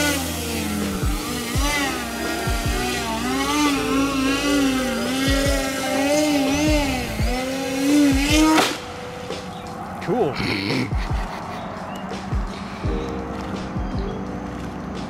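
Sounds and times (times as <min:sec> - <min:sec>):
model plane motor whining: 0:00.0 - 0:09.0
plane hitting water: 0:00.0 - 0:10.2.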